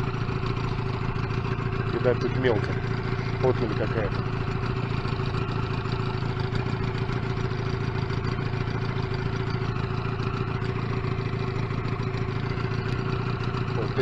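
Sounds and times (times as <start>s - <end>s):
outboard motor running: 0.0s - 14.0s.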